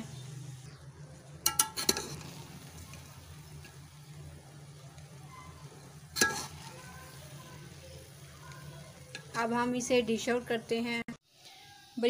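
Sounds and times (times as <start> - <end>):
metal spoon clinking on pot: 1.4 - 2.3, 6.2 - 6.6.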